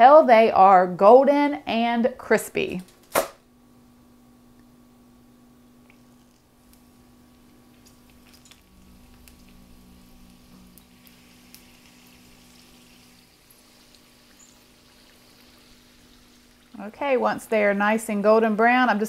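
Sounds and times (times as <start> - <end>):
food sizzling in oil: 6.2 - 16.9.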